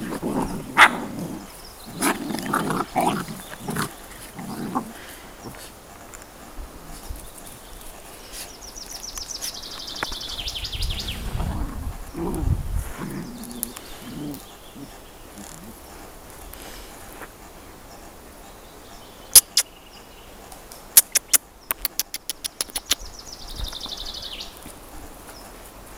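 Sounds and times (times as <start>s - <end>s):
puppies grunting: 0.0s - 5.8s, 11.4s - 16.9s
sharp clicks: 19.4s - 19.7s, 21.0s - 23.1s.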